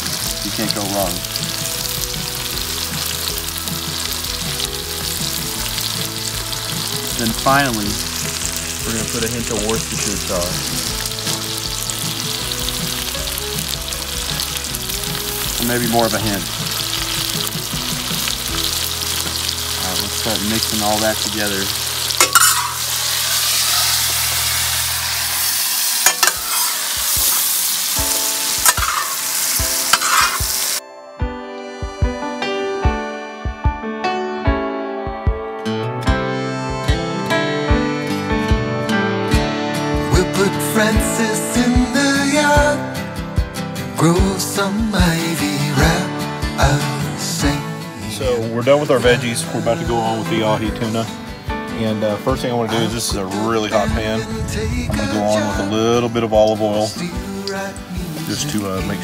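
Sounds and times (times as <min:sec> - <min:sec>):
vegetables sizzling in a pan: 0:00.0 - 0:30.8, 0:57.2 - 0:59.0
metal spatula scraping pan: 0:22.2 - 0:24.4, 0:26.0 - 0:27.5, 0:28.6 - 0:29.3, 0:29.9 - 0:30.6.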